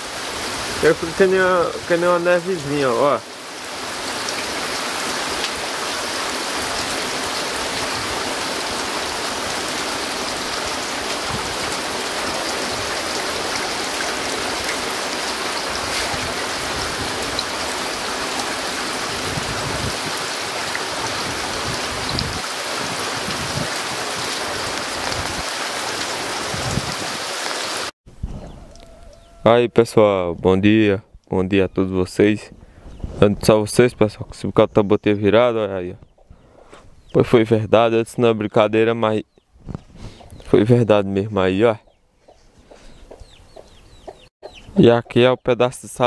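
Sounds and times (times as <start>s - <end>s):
heavy rain pouring: 0.0s - 27.9s.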